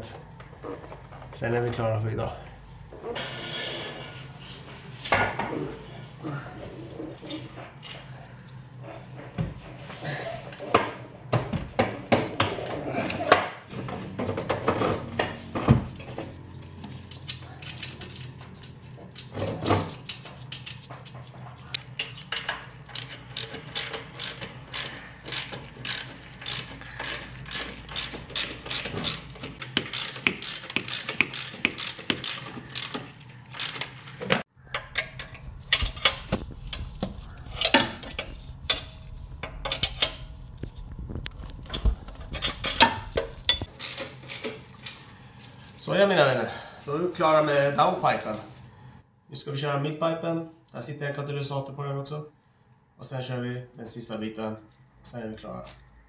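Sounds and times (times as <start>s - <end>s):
ratchet wrench clicking: 22.9s - 33.9s.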